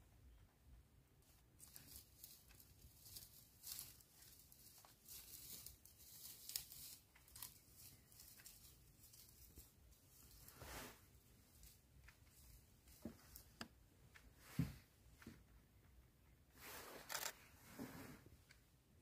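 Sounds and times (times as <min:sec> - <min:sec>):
faint crackling rustles: 0:01.2 - 0:15.6.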